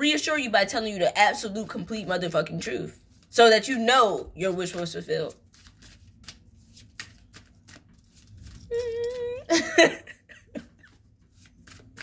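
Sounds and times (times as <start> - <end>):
woman laughing: 8.7 - 11.1.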